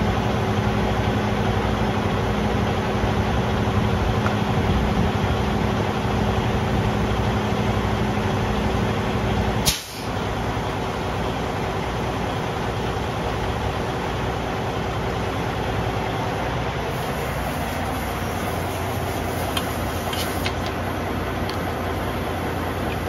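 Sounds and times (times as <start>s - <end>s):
compressed air hissing: 9.6s - 10.2s, 16.9s - 20.6s.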